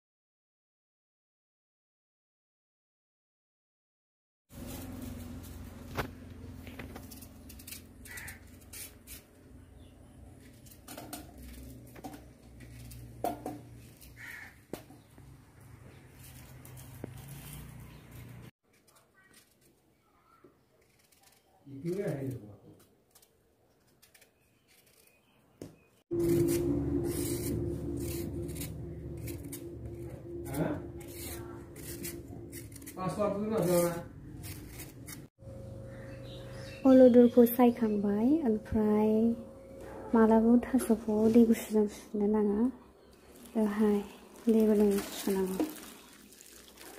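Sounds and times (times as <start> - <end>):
knife scraping mango: 6.7 - 14.4, 23.2 - 25.4, 26.1 - 35.3
steady low hum: 26.1 - 34.4
knife cutting plant stalk: 31.0 - 33.0, 33.6 - 35.3.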